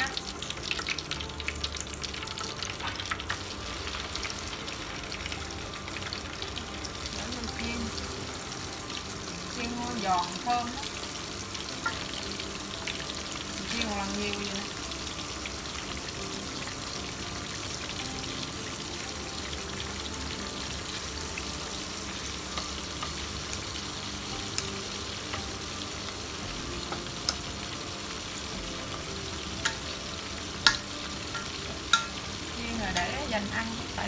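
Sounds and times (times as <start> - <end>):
deep-frying sizzle: 0.0 - 34.0
oil popping: 28.6 - 32.2.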